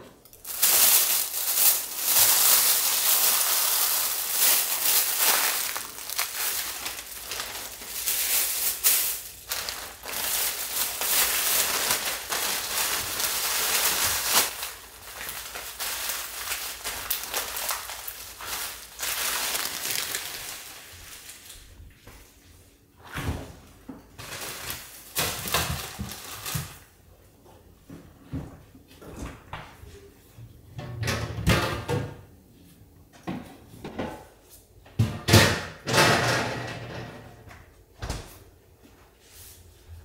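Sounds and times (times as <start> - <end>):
plastic bags crinkling: 0.3 - 21.6, 24.2 - 26.9.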